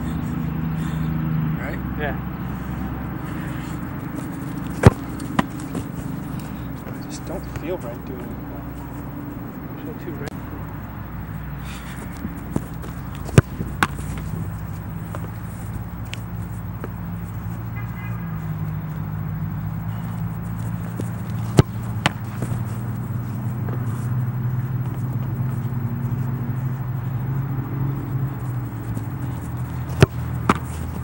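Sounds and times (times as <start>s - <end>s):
steady low hum: 0.0s - 31.0s
ball smacks: 4.5s - 6.0s, 12.5s - 14.4s, 21.0s - 22.7s, 29.9s - 31.0s.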